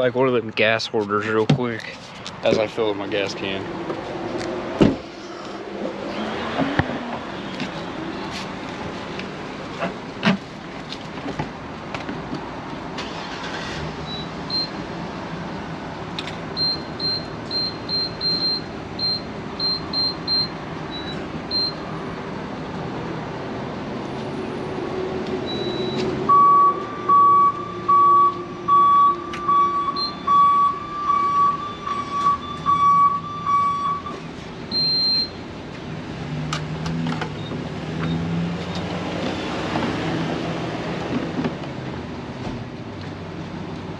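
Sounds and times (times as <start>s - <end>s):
outdoor traffic noise: 0.0s - 43.9s
lower evenly spaced beeps: 25.5s - 34.1s, 34.7s - 35.4s.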